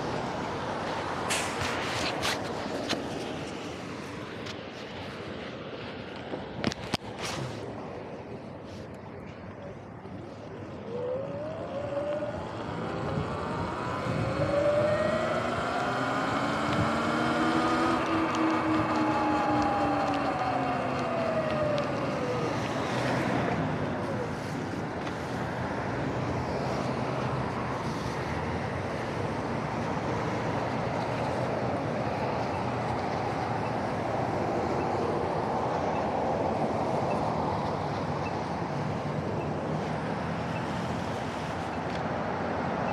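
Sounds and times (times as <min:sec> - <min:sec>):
traffic on wet road: 0:00.0 - 0:42.9
electric motor whining: 0:10.9 - 0:23.4.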